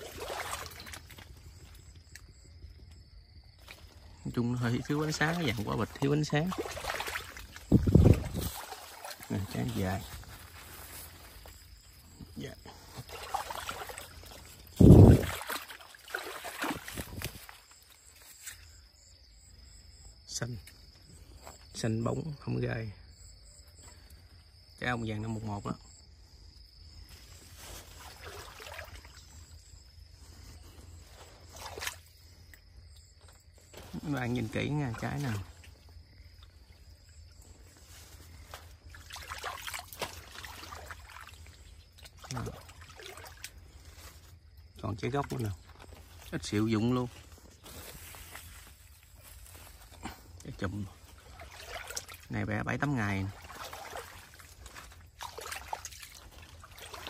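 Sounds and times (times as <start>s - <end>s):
insect trilling: 0.0s - 57.0s
water trickling and sloshing: 0.0s - 57.0s
leaves rustling: 3.4s - 18.9s, 26.2s - 32.5s, 33.2s - 57.0s.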